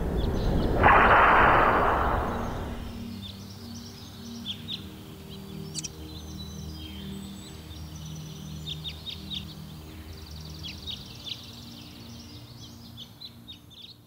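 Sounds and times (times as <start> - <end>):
small birds chirping: 0.0 - 14.0
soft music of low notes: 2.9 - 14.0
bird trill: 5.6 - 13.0.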